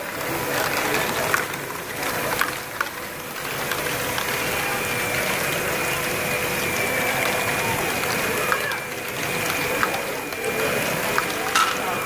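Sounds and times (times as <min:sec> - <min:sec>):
toy motors and gears whirring: 0:00.0 - 0:12.0
plastic balls clattering: 0:11.2 - 0:12.0.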